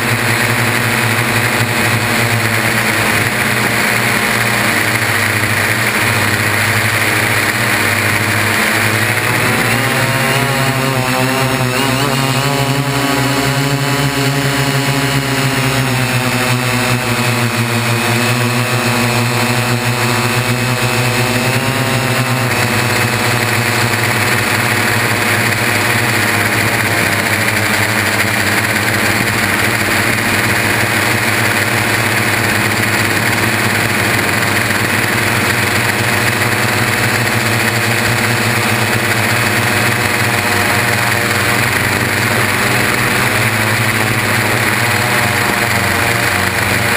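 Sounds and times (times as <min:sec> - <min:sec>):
drone motors buzzing whine: 0:00.0 - 0:46.9.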